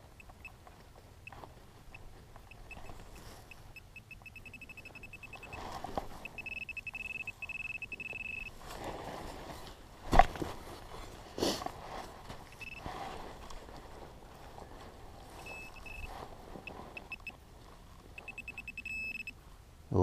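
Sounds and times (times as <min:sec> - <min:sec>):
metal detector beeping: 0:00.0 - 0:00.6, 0:01.2 - 0:08.6, 0:12.4 - 0:12.9, 0:15.3 - 0:17.4, 0:18.2 - 0:19.4
hands rustling in soil and grass: 0:04.6 - 0:18.6.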